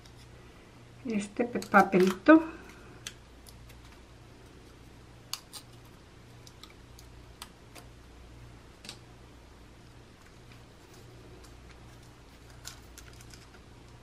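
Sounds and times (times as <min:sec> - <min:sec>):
low steady hum: 0:00.0 - 0:14.0
faint clicks and rustles: 0:09.8 - 0:14.0.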